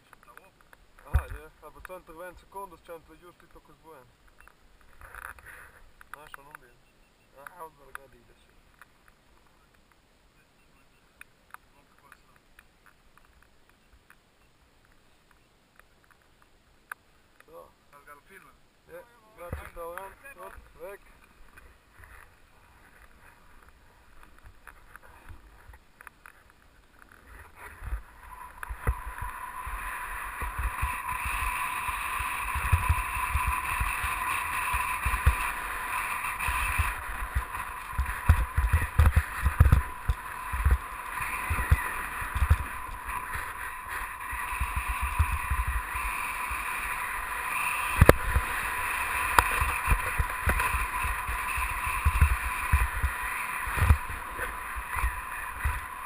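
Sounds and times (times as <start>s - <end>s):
wind rumbling on microphone: 20.5s - 56.0s
snowboard scraping over snow: 27.2s - 56.0s.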